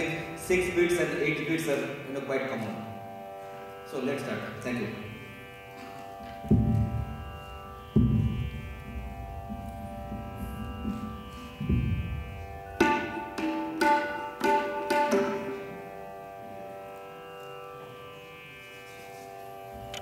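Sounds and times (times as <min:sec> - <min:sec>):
tanpura drone: 0:00.0 - 0:20.0
hand drum strokes: 0:05.7 - 0:15.9.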